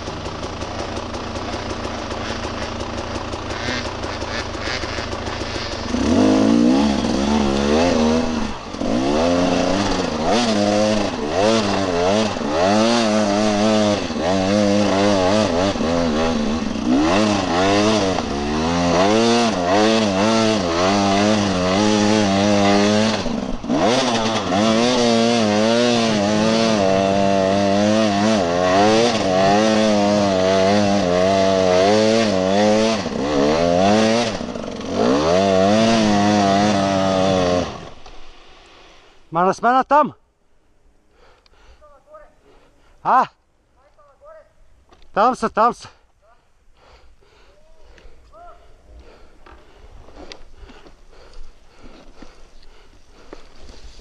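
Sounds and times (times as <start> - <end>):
dirt bike engine revving: 0.0 - 39.3.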